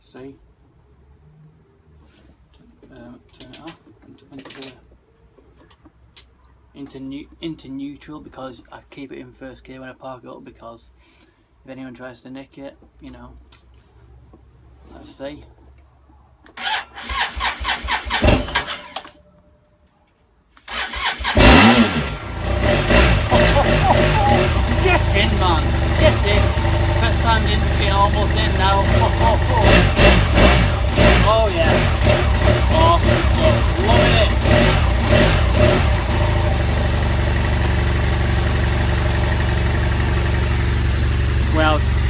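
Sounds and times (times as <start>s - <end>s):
starter motor cranking: 20.6s - 25.1s
motorcycle engine revving and running: 21.0s - 42.0s.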